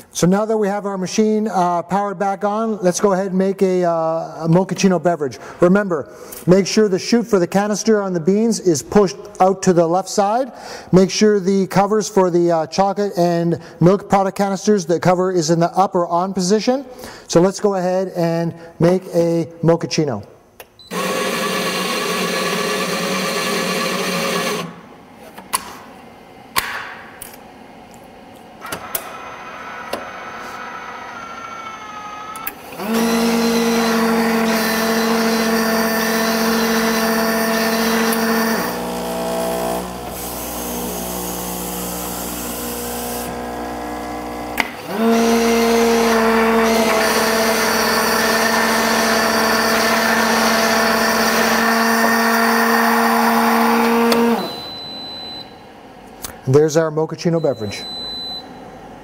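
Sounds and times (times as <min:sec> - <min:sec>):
coffee machine motor running: 0:20.9 - 0:24.8, 0:29.1 - 0:54.6
mixer motor humming: 0:20.9 - 0:24.9, 0:28.7 - 0:54.8.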